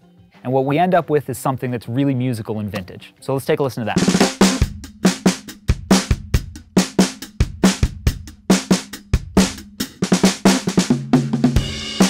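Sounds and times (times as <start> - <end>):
drum kit playing a groove: 3.9 - 12.0.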